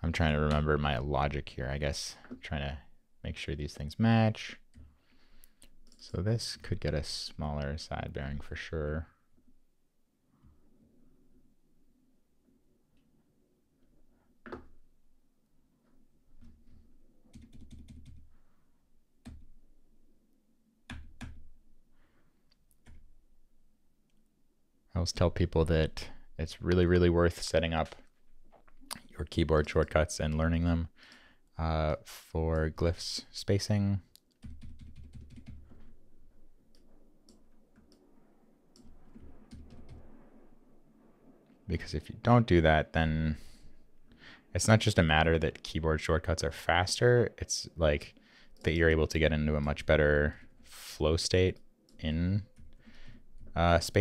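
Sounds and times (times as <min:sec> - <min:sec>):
computer keyboard keystrokes: 0:17.3 - 0:18.2, 0:34.3 - 0:35.9.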